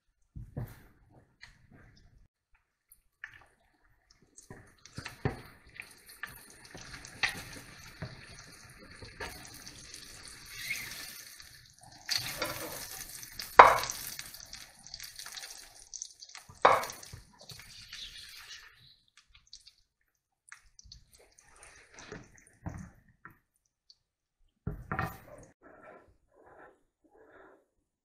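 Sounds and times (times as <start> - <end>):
eggs sizzling in a frying pan: 2.8 - 22.9
fork and spatula scraping pan: 25.6 - 27.7.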